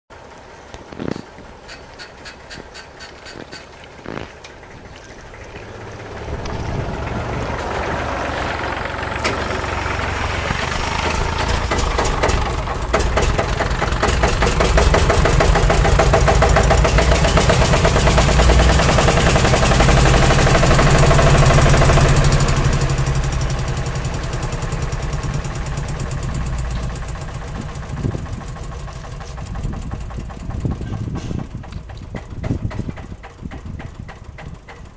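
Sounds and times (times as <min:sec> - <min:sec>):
engine running with fast pulse: 0:04.0 - 0:34.9.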